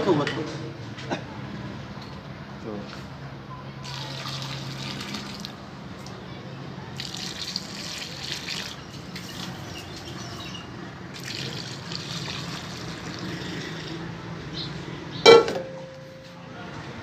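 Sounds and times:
water pouring into pot: 3.8s - 5.6s, 7.0s - 10.2s, 11.1s - 14.0s.

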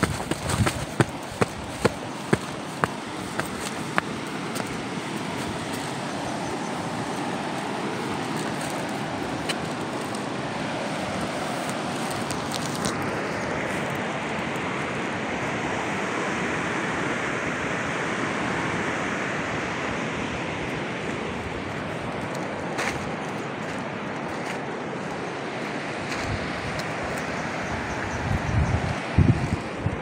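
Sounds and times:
waterfall rushing: 0.0s - 12.5s.

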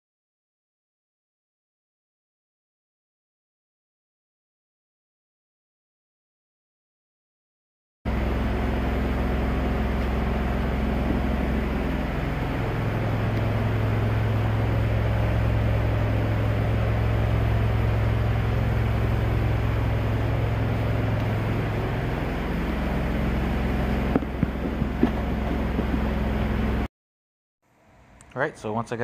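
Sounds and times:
welder generator engine drone: 8.1s - 26.9s.

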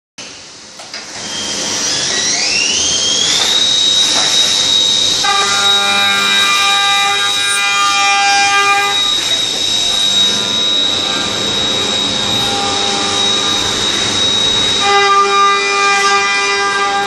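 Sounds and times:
machine spindle whining: 1.1s - 17.0s
face mill cutting metal ringing: 2.9s - 16.3s.

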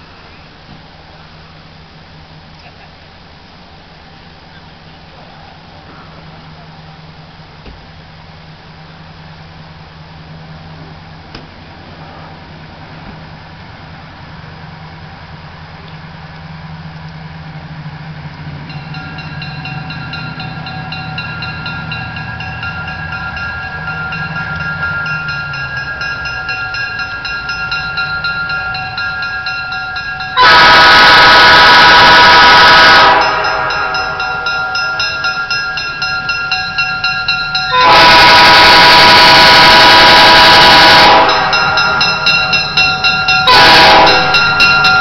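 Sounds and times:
locomotive horn chord: 19.1s - 36.6s, 37.2s - 45.0s.

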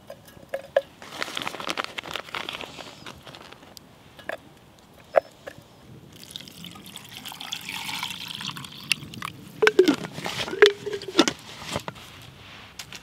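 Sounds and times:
water pouring into metal cup: 6.1s - 11.2s
knocks and scrapes of handling: 9.6s - 13.0s.

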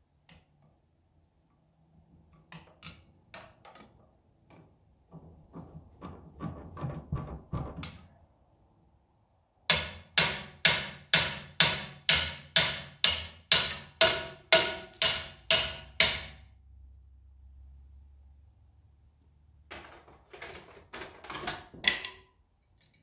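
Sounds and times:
hammer striking metal: 9.7s - 16.4s.

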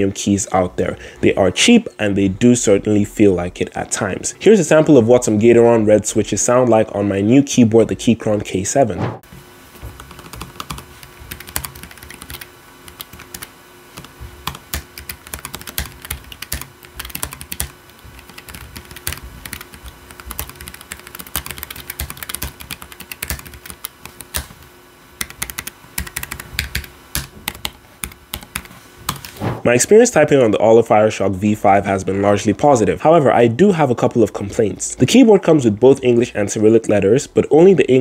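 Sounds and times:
mechanical keyboard typing: 10.0s - 24.6s, 25.2s - 29.3s.

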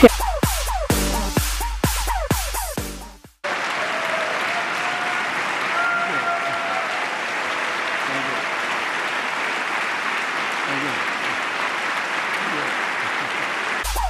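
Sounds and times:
electronic music: 0.0s - 3.2s
crowd clapping: 3.4s - 14.0s.

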